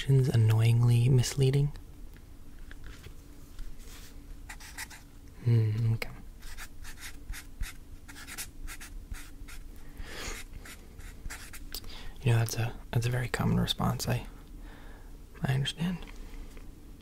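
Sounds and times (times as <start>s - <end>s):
closed-mouth hum: 0.0s - 8.2s
pen writing on paper: 10.6s - 11.6s.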